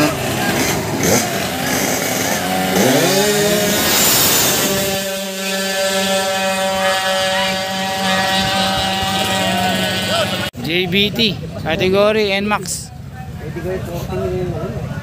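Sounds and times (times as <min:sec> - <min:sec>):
scooter engine revving: 0:00.0 - 0:10.6.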